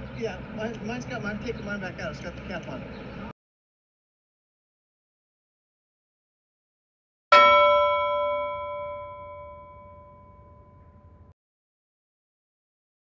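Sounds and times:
bell-like metallic strike ringing: 7.3 - 11.4.

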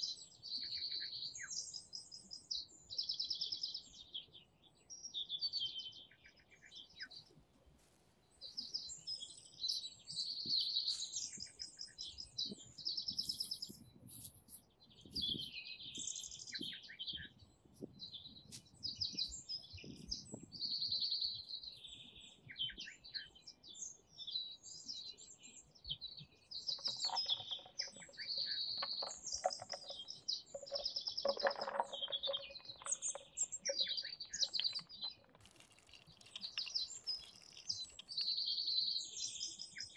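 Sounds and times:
songbirds chirping: 0.0 - 39.9.

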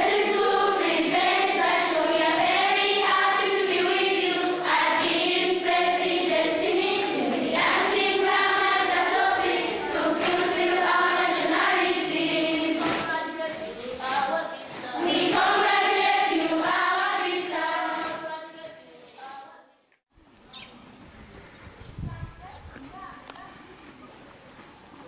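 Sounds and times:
children's choir singing: 0.0 - 19.8.

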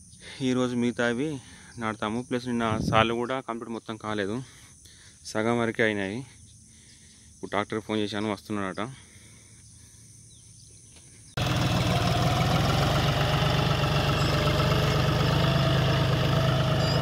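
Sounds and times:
diesel tractor engine under load: 11.4 - 17.0.

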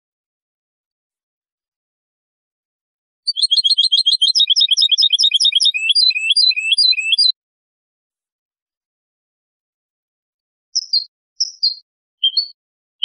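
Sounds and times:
goldfinch singing: 3.3 - 7.3, 10.8 - 12.6.

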